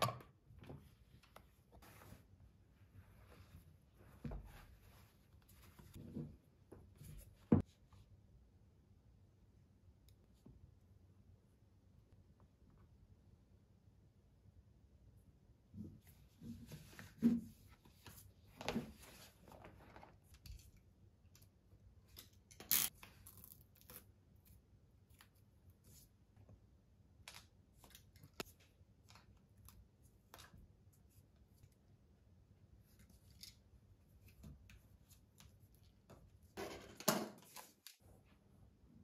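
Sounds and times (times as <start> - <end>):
fabric rustling and scraping: 0.8 - 7.7.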